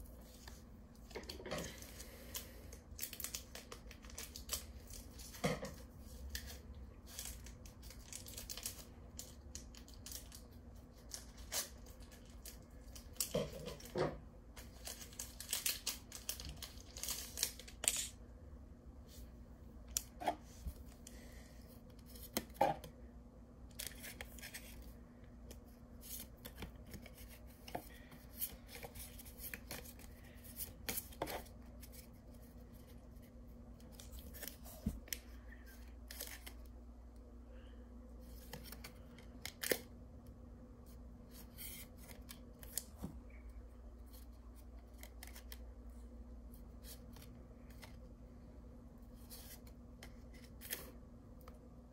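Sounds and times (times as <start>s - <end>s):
cards flipped through: 38.2s - 39.9s.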